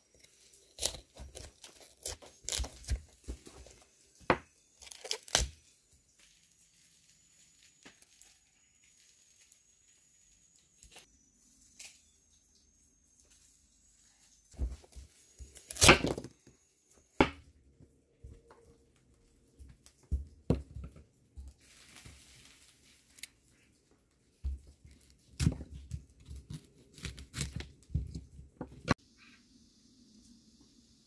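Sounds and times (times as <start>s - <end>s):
knife cutting cauliflower: 0.1s - 5.6s, 14.6s - 16.3s, 24.4s - 29.0s.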